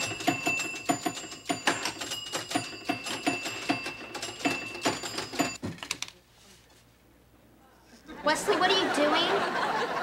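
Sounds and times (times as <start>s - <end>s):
pinball flipper and bumper clacks: 0.0s - 5.6s
ringing bell tones: 0.0s - 5.6s.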